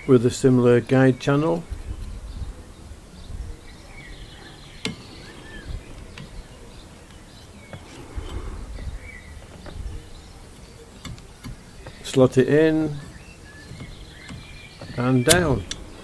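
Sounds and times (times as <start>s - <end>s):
plastic bracket clicking on metal: 4.8s - 16.0s.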